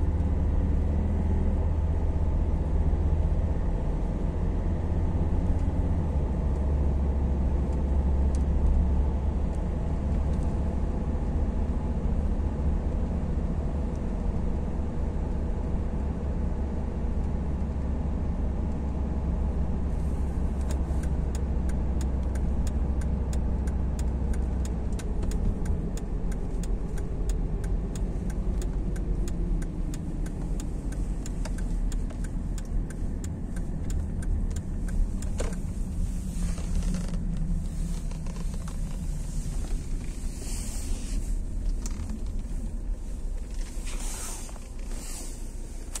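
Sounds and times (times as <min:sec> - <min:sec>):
car engine and road rumble: 0:00.0 - 0:46.0
light regular ticking: 0:20.4 - 0:46.0.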